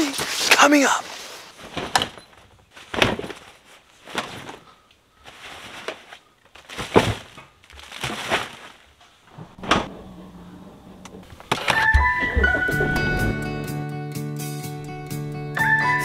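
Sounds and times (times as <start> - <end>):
fabric and plastic rustling: 0.0 - 10.0
soft thuds of bags: 1.6 - 9.0.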